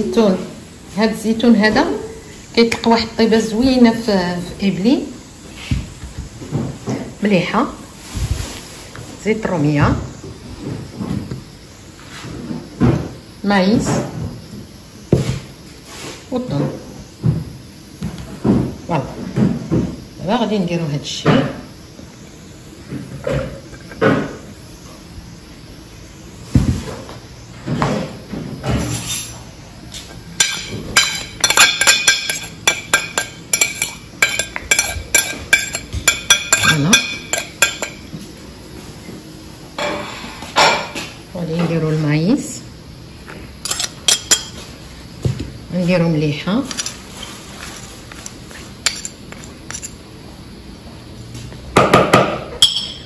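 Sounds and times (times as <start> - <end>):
pot and spoon clinking down: 30.4 - 38.0, 52.6 - 53.0.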